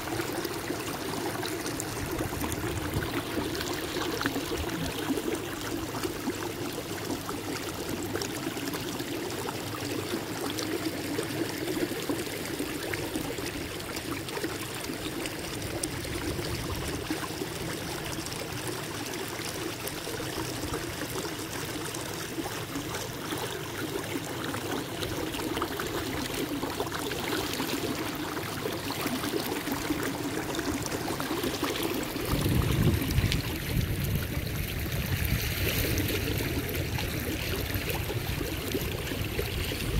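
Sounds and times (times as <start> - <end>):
water lapping against kayak hull: 0.0 - 39.9.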